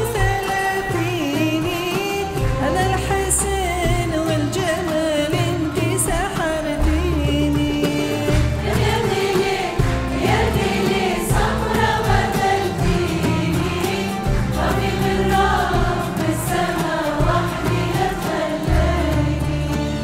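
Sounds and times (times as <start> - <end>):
frame drums: 0.0 - 20.0
oud: 0.0 - 20.0
qanun: 0.0 - 20.0
violins: 0.0 - 20.0
women's choir singing: 8.0 - 20.0.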